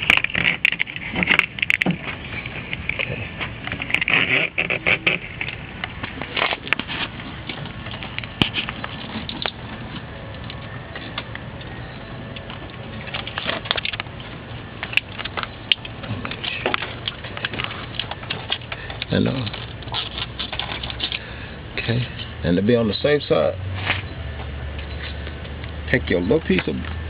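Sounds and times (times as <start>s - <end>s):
plastic tubing rustling: 0.0s - 11.2s, 12.5s - 21.3s
crackles and clicks of wiring: 0.0s - 22.4s, 23.8s - 27.0s.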